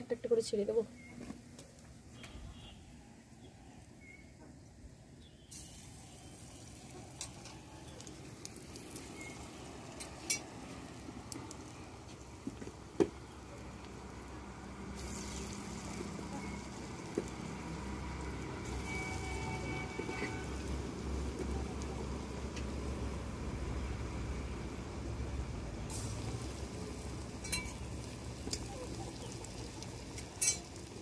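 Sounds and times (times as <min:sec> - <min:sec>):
fritters sizzling in hot oil: 0:05.3 - 0:31.0.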